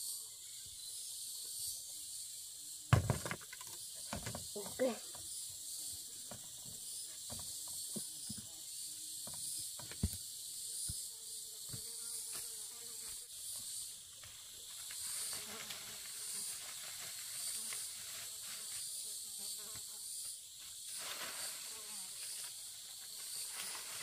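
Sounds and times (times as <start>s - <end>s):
insect chorus: 0.0s - 24.0s
soil clods knocking: 2.9s - 4.6s
dry leaves rustling: 14.7s - 19.0s, 20.8s - 24.0s.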